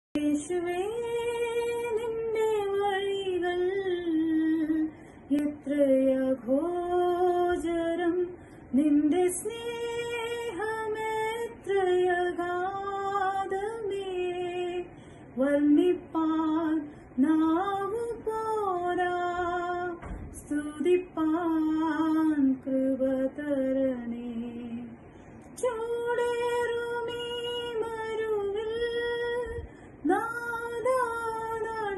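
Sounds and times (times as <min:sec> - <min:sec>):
woman singing: 0:00.2 - 0:25.0, 0:25.6 - 0:31.9.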